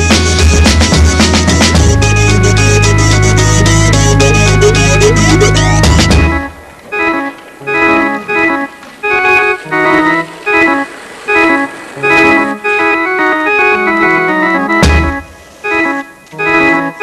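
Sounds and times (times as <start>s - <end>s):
organ playing choppy chords: 0.0s - 17.0s
sharp musical hit: 2.6s - 6.4s.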